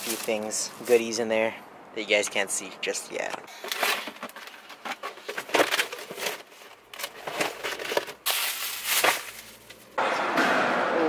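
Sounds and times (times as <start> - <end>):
cardboard boxes rustling and scraping: 3.5 - 10.0.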